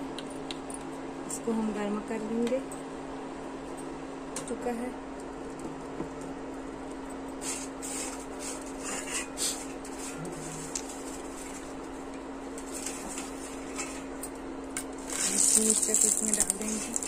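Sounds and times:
induction cooktop humming: 0.0 - 17.0
hot oil crackling: 15.0 - 17.0.

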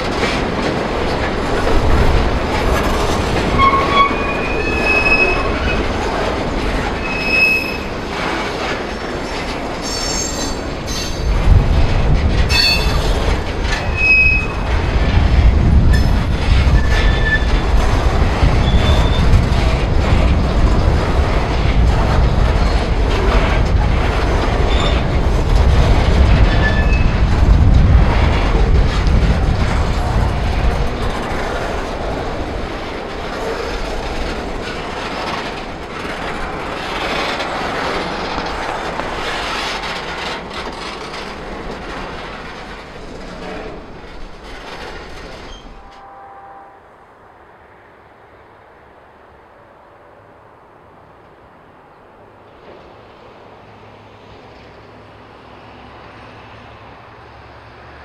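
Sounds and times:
freight train wheels on rails: 0.0 - 58.0
high wheel squeals: 3.5 - 5.9, 7.0 - 8.0, 9.8 - 11.3, 13.8 - 14.7, 16.7 - 17.6, 18.6 - 19.3, 26.5 - 27.2.

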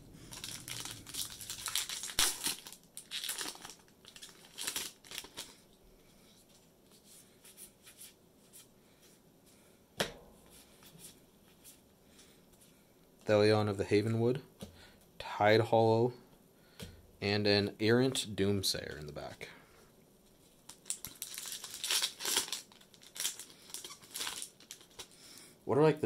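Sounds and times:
foil wrapper tearing and crinkling: 0.3 - 5.6, 20.6 - 25.2.

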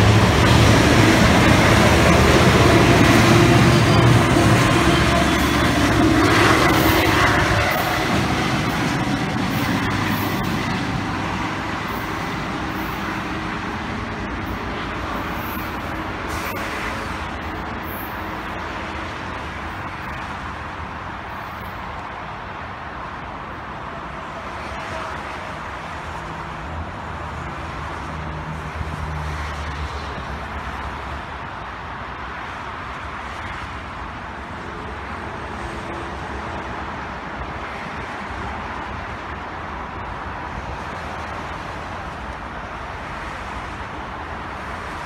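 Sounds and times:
diesel train engine: 0.0 - 45.0
rail noise: 0.0 - 45.0.

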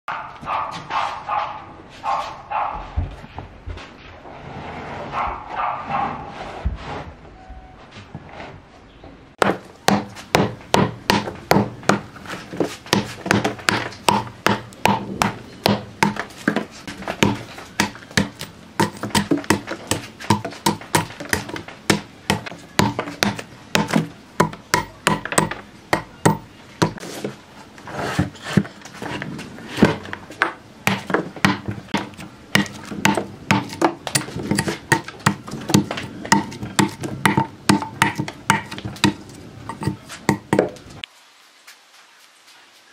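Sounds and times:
blade chopping wood: 9.4 - 27.0, 29.8 - 40.8.

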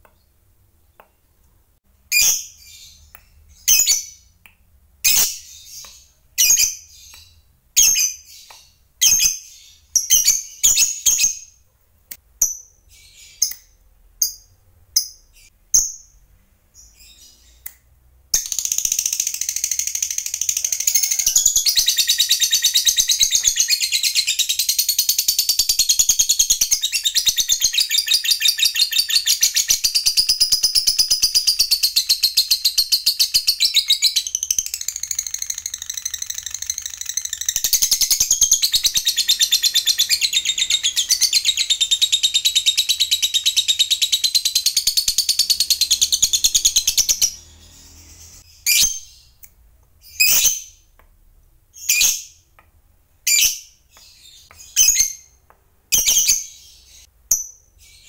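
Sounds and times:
sharp bird chirps: 5.0 - 11.6, 12.4 - 49.4.

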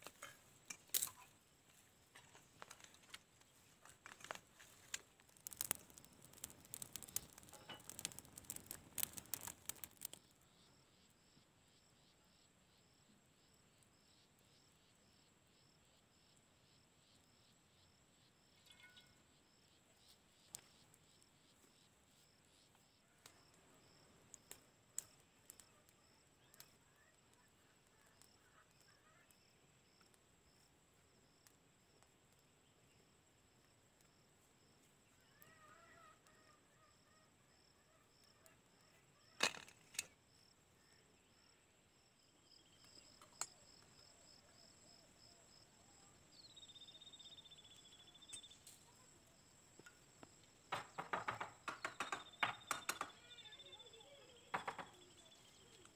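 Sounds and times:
insects trilling and chirping: 0.0 - 55.9
sharp clicks: 4.1 - 10.2.

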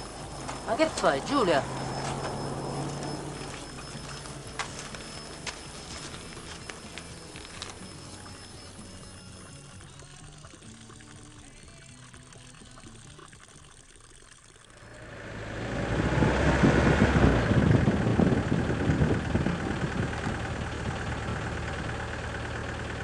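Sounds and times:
car engine: 0.0 - 9.5, 14.7 - 23.0.

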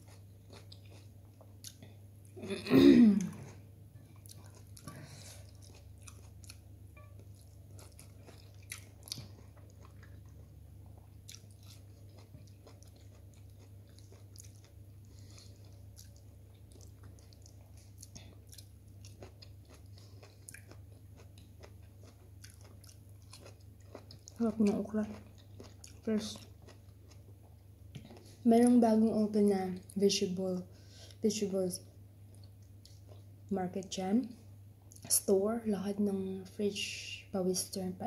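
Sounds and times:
person chewing food: 0.0 - 28.4, 32.2 - 33.4, 34.8 - 35.1
steady low hum: 0.0 - 38.0.

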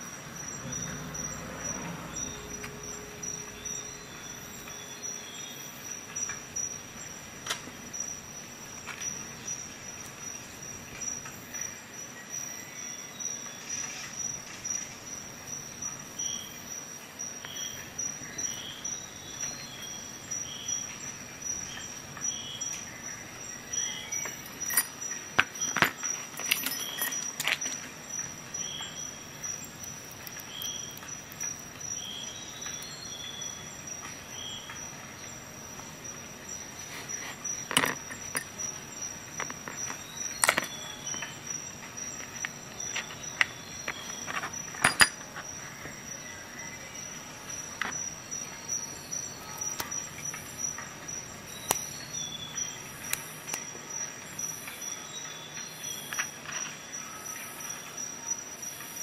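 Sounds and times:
steel tool bits clicking: 24.2 - 27.8, 37.6 - 38.7, 39.4 - 45.3.

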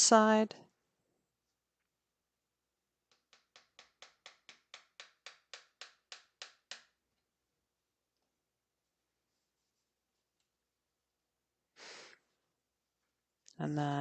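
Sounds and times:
hammer tapping tack into wood: 3.1 - 7.0.

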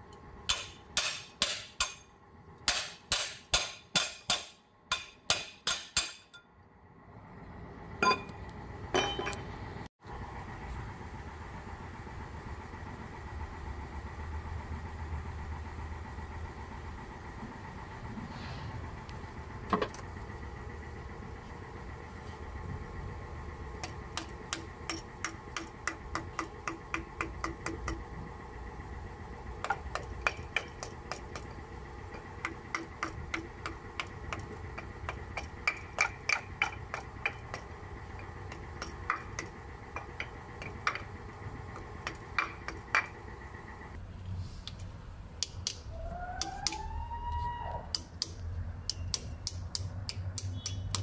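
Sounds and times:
hammer tapping metal: 0.5 - 2.1, 2.7 - 6.5, 9.0 - 9.4, 23.8 - 28.1, 29.6 - 31.5, 32.1 - 43.2, 45.4 - 46.8, 47.8 - 51.0.

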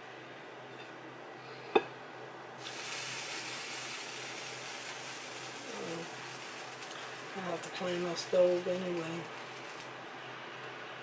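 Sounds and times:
frying pan sizzling: 2.6 - 10.0.

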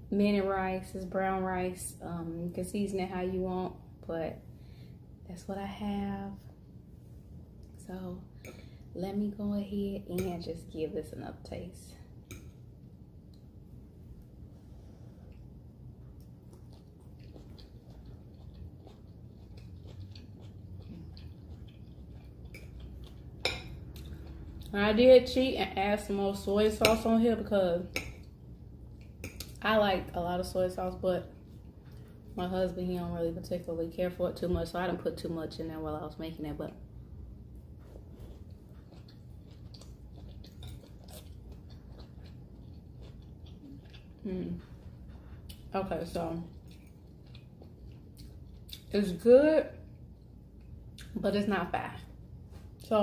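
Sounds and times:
person chewing food: 15.0 - 24.7, 37.2 - 45.7, 46.4 - 48.9.

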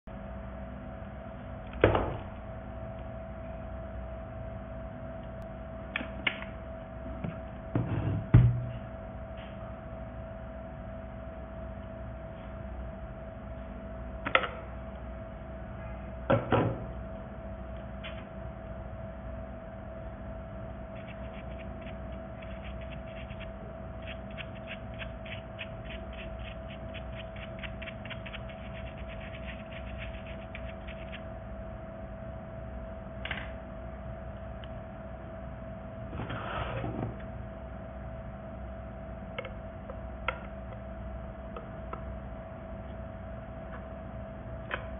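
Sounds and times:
faint steady hum: 0.1 - 44.9
plastic brush scrubbing filter: 21.0 - 31.2.

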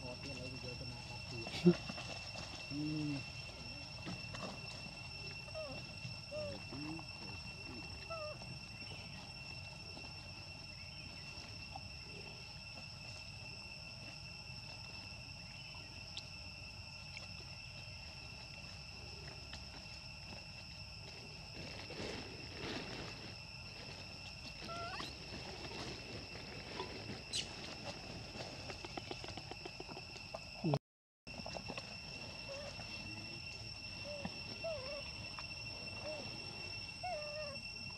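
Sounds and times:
high-pitched insect drone: 0.0 - 37.9
rustling in dry leaves: 19.9 - 28.8.

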